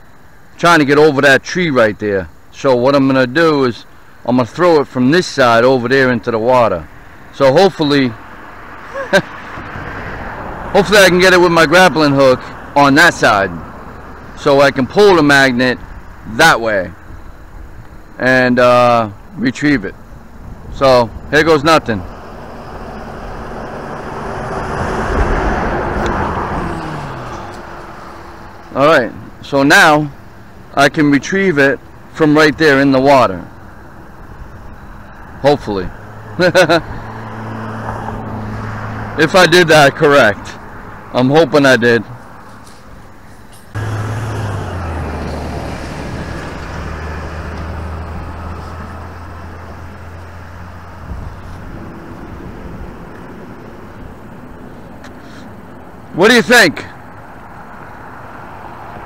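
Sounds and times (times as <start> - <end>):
vehicle engine drone and road noise: 0.0 - 59.0
car driving past: 8.2 - 12.8, 21.8 - 29.0, 35.0 - 41.2, 43.7 - 55.4.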